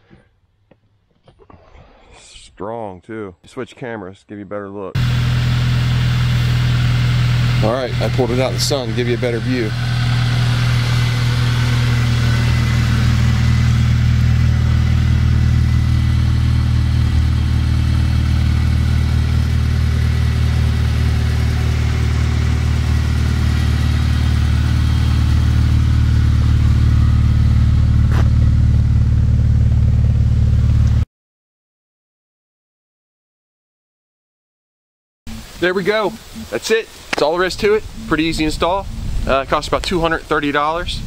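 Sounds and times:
car engine idling: 5.0 - 31.0, 35.3 - 41.0.

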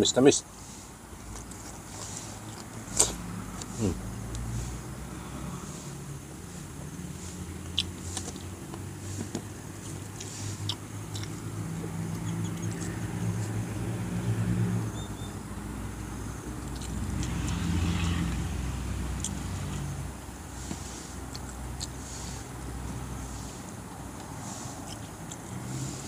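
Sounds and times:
wet chewing and lip smacks: 7.6 - 8.5, 9.8 - 13.5, 16.6 - 18.1, 19.2 - 19.8, 21.3 - 22.0, 23.9 - 25.5.

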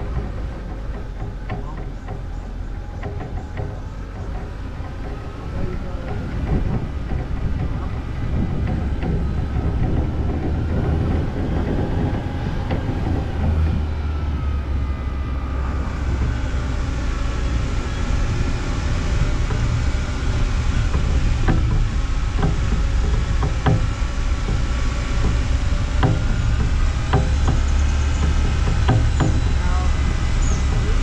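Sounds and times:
car engine and road rumble: 0.0 - 31.0
wind noise on microphone: 0.0 - 31.0
faint whine rising and falling: 2.1 - 31.0.

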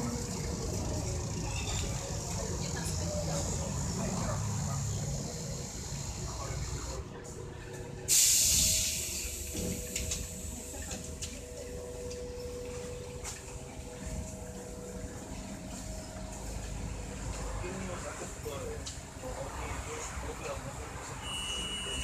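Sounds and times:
steady low rumble: 5.0 - 19.2
compressed air hiss: 8.1 - 10.5.

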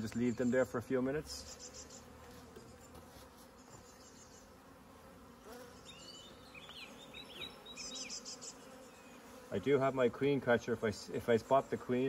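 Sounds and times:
bees buzzing: 0.0 - 12.0.

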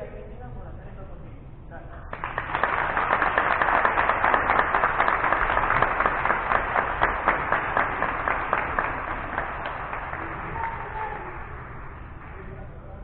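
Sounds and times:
people applauding: 2.1 - 13.0.

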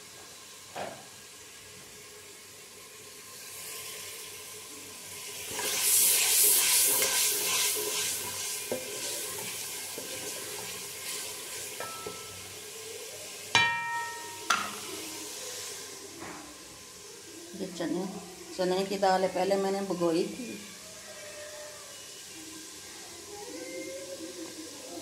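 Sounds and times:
spices sizzling in oil: 0.0 - 25.0
metal spoon clanking on pot: 11.8 - 12.4, 13.6 - 14.8.

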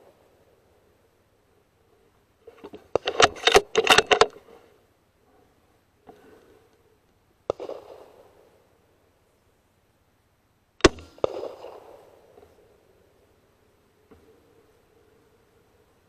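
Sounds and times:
sharp cracks: 7.5 - 8.4, 10.8 - 12.6.

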